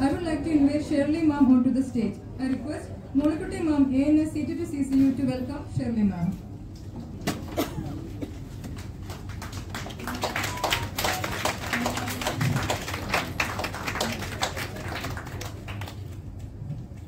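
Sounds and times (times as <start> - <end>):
audience clapping: 8.2 - 16.6.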